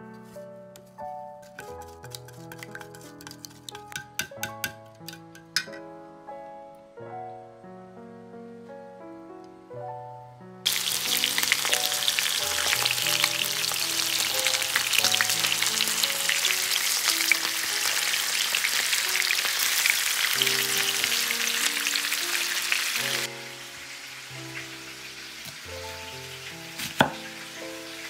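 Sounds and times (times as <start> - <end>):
chicken sizzling in a pan: 10.7 - 28.0.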